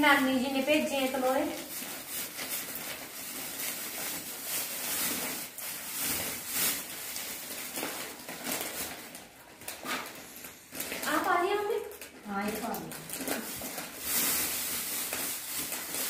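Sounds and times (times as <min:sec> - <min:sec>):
plastic bags crinkling: 0:00.0 - 0:16.0.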